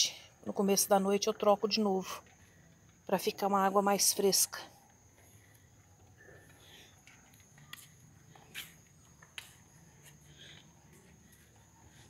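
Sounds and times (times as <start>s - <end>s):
footsteps on concrete: 6.0s - 12.0s.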